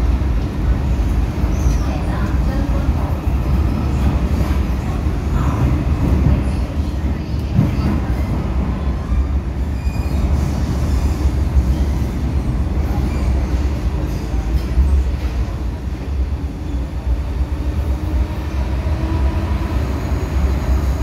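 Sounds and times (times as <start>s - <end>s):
train wheels rumbling on track: 0.0s - 21.0s
faint high squeals: 9.6s - 10.5s.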